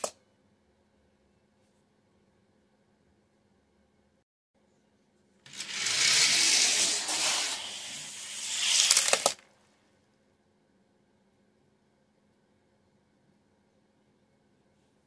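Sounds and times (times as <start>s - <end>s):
toy cars rolling down plastic track: 5.5s - 9.5s
sharp plastic clacks: 8.5s - 9.5s.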